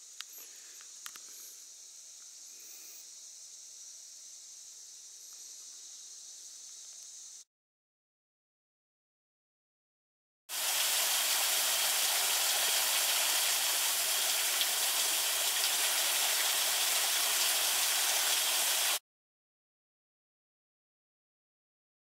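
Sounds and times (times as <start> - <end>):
small waterfall splashing on rocks: 10.5 - 19.0.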